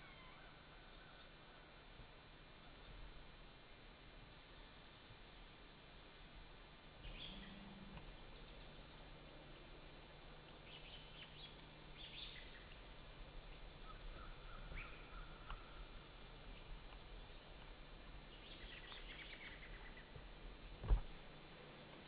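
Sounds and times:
faint woodland ambience: 0:00.0 - 0:22.0
faint ticks: 0:15.4 - 0:15.7.

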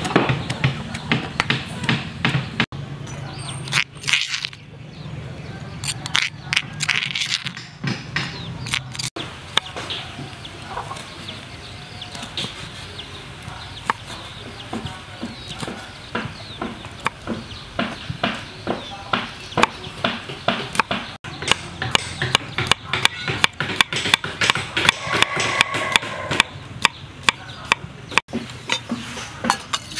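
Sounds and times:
knife chopping on wooden board: 0:13.8 - 0:29.6.

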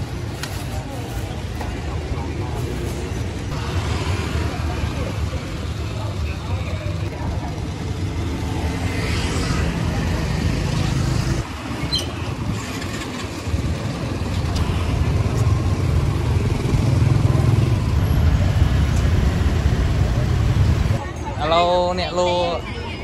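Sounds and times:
faint voices: 0:00.0 - 0:11.6
car and motorbike engines: 0:00.0 - 0:21.7.

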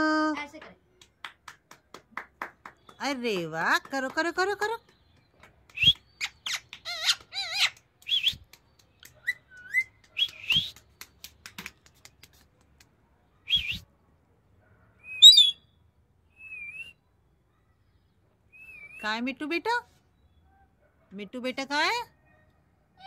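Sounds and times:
parakeet whistles and chirps: 0:15.0 - 0:15.7, 0:16.4 - 0:17.0, 0:18.5 - 0:19.1.

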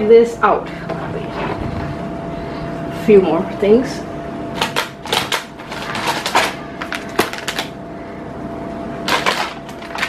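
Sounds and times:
plastic snack packets crinkling: 0:04.6 - 0:07.8, 0:09.1 - 0:10.0.

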